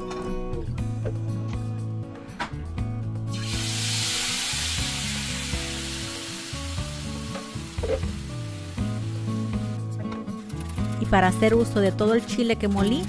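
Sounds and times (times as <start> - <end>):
sauce sizzling in hot oil: 3.3 - 9.9.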